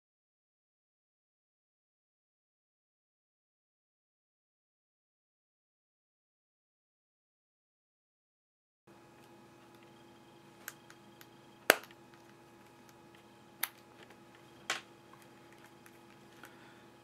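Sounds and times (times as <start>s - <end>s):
faint steady hum: 8.9s - 17.0s.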